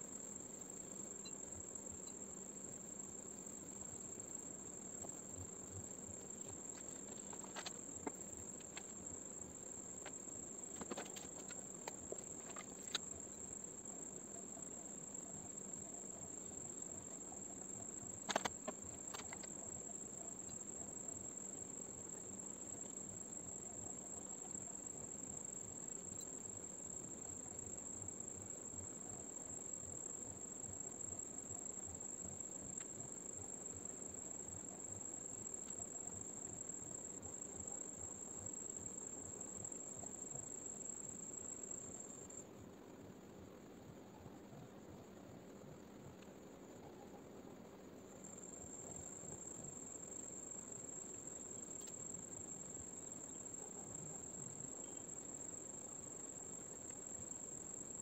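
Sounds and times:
high-pitched insect trill: 0.0s - 42.4s, 48.2s - 58.0s.

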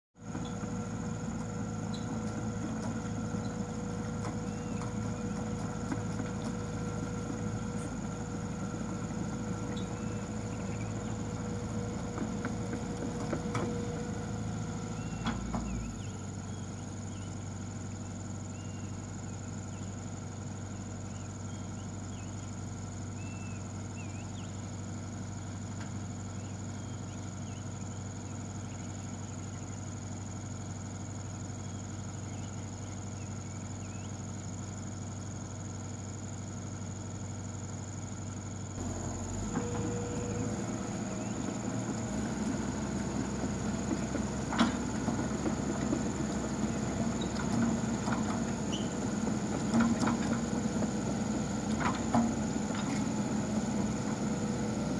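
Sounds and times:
excavator diesel engine: 0.2s - 54.9s.

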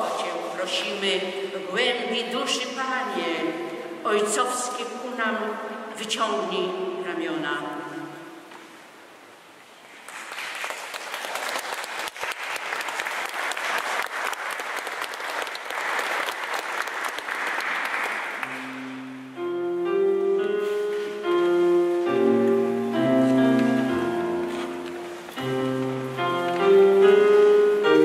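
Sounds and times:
audience applauding: 10.0s - 18.8s
instrumental music with held chords: 18.4s - 28.0s.

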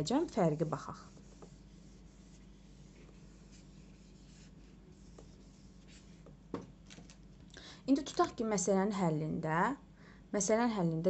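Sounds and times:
steady low hum: 0.0s - 11.0s
eraser rubbing whiteboard: 0.2s - 6.4s.

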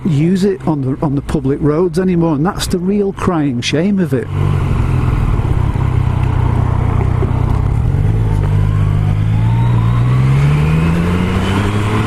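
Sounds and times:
motorcycle engine revving: 4.1s - 12.0s.

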